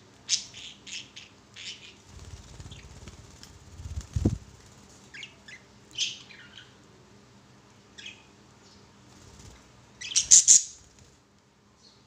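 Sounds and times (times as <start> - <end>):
wing flaps: 2.1 - 5.0
budgerigars chirping: 10.0 - 10.8.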